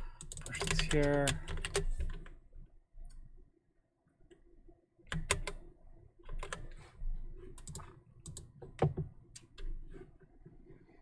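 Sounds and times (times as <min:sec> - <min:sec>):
keyboard typing: 0:00.0 - 0:02.4, 0:05.1 - 0:06.8, 0:07.4 - 0:09.8.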